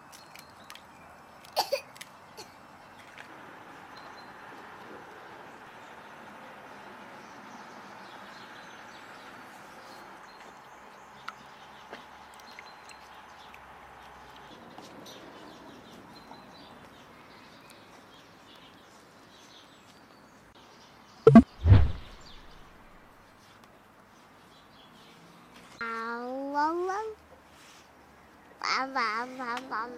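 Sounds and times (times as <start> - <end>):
loud low thumps: 21.3 - 22.6.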